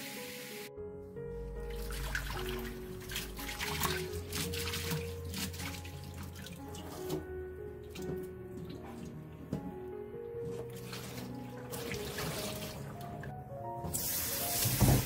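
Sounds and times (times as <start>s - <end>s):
background music: 0.0s - 15.0s
water splashing in metal bowl: 1.7s - 7.2s, 10.7s - 13.1s.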